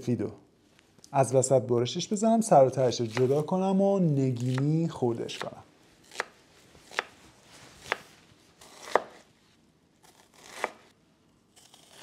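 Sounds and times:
knife slicing onion on cutting board: 3.0 - 3.5, 4.4 - 7.2, 7.8 - 9.3, 10.0 - 10.9.

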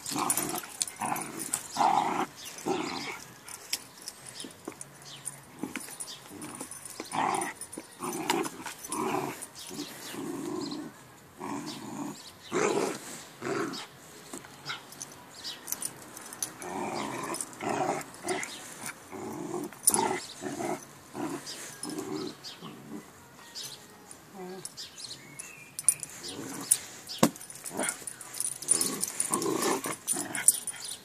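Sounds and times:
dogs growling: 0.0 - 3.7, 5.5 - 13.9, 16.4 - 23.1, 26.1 - 26.9, 27.6 - 31.0.

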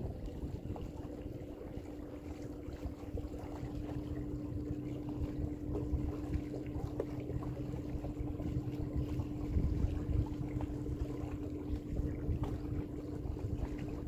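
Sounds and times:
boat motor running: 0.0 - 14.0.

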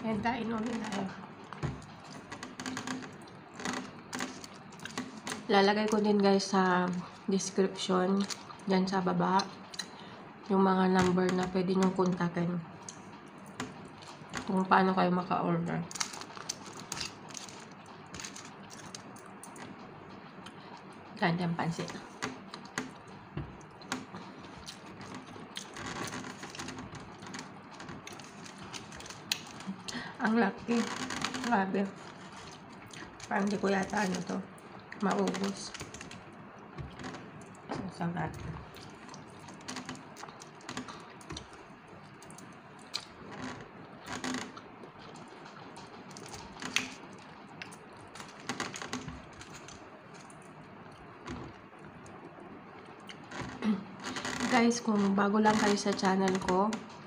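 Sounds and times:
fingers crinkling foil tray: 30.7 - 36.3
chewing and finger-licking: 38.7 - 43.2, 44.6 - 48.4
fingers pulling apart fish: 44.2 - 50.6.

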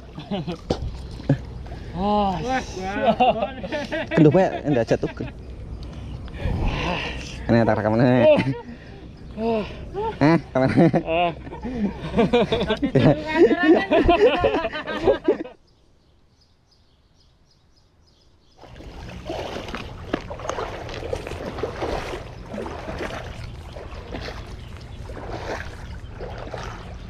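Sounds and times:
water sloshing and splashing: 0.0 - 2.8, 18.6 - 27.0
voices: 1.3 - 15.5.

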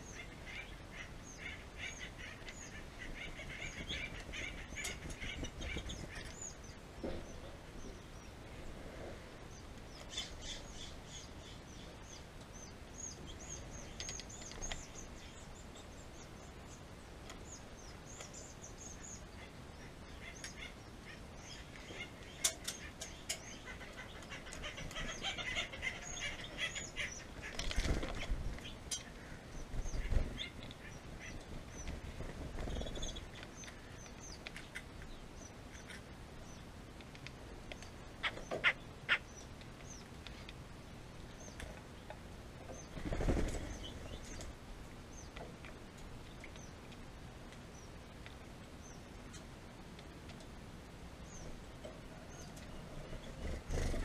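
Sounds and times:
small birds chirping: 0.0 - 54.0
wing flutters and bumps: 27.4 - 28.7, 29.7 - 30.8, 31.4 - 33.4, 42.7 - 44.5, 53.0 - 54.0.

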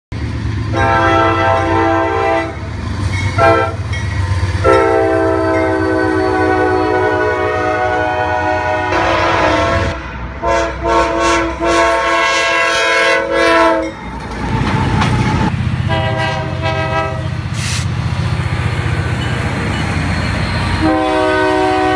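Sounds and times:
low rumble of passing train: 0.1 - 21.9
locomotive air horn blasts: 0.7 - 2.7, 3.4 - 3.9, 4.6 - 13.9, 15.9 - 17.8, 20.8 - 21.9.

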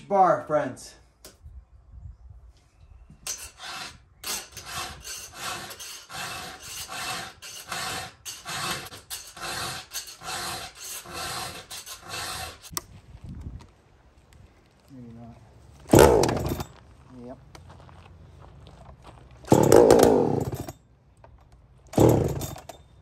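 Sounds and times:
hand file rasping on chain: 3.2 - 12.7.

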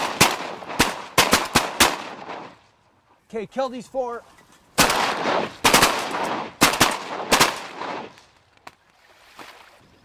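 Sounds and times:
shotgun blasts with echo: 0.0 - 2.6, 4.8 - 8.2.

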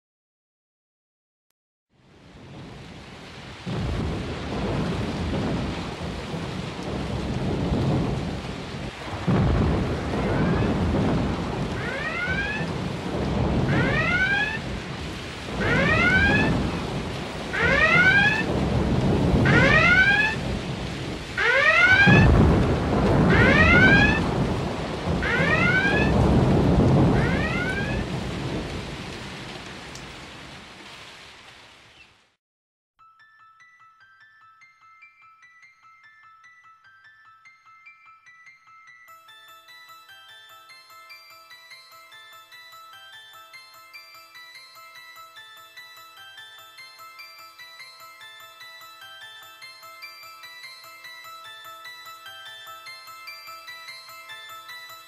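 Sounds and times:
heavy rain: 2.0 - 32.4
rolling thunder: 2.3 - 30.8
rising wailing tone: 11.8 - 12.8, 13.6 - 14.7, 15.6 - 16.7, 17.4 - 18.5, 19.4 - 20.4, 21.4 - 22.5, 23.3 - 24.3, 25.2 - 26.2, 27.0 - 28.1.

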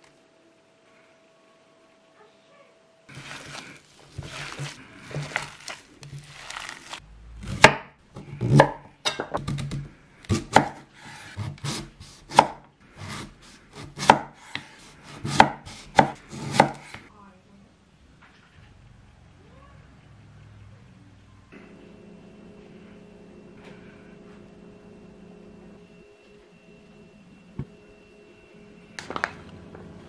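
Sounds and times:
knife chopping on wooden board: 7.5 - 17.0.

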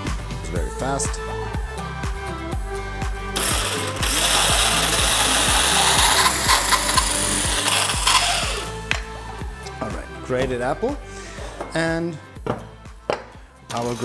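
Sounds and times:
background music with steady beat: 0.0 - 14.0
food processor motor running: 3.4 - 8.7.

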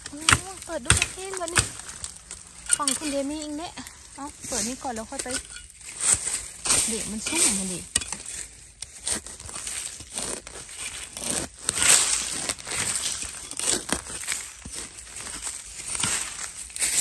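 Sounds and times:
spade chopping into dry soil: 0.0 - 3.5
crackling leaves: 0.0 - 17.0.

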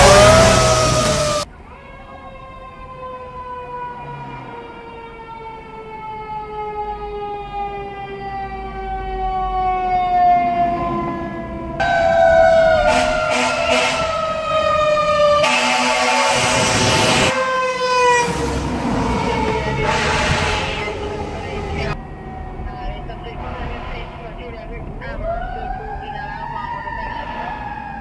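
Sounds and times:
fire truck siren wailing: 0.0 - 28.0
short low horn blasts: 11.8 - 14.3, 15.4 - 17.4, 19.6 - 21.2.

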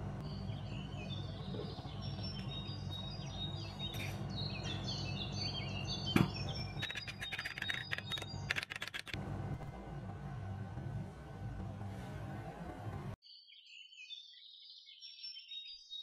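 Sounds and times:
low hum: 0.0 - 13.2
small birds chirping: 0.2 - 9.1.

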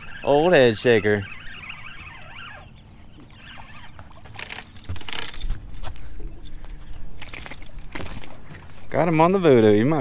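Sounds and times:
metallic jangling of beads and wire: 4.4 - 9.5.

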